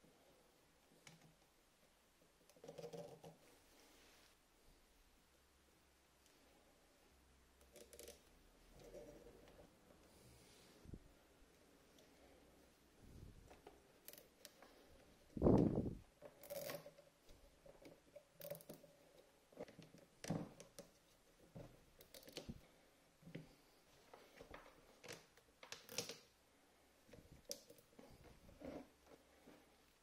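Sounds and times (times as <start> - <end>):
wires clicking and rustling: 0.8 - 3.5, 7.6 - 10.0, 13.0 - 26.4, 27.1 - 30.0.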